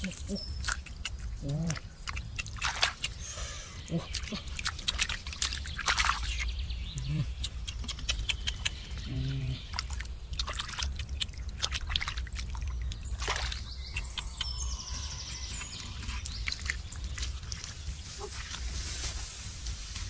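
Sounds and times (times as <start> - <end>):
hand splashing in muddy puddle: 0.0 - 3.2, 4.0 - 6.5, 9.7 - 14.3.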